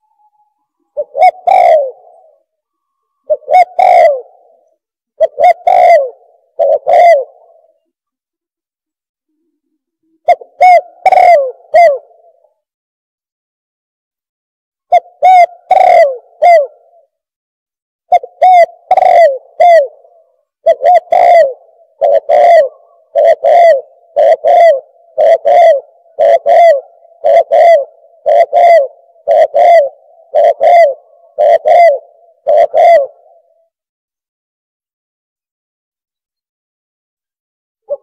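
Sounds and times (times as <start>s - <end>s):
dove cooing: 0.0s - 7.9s, 10.1s - 12.5s, 14.9s - 17.1s, 18.1s - 33.7s.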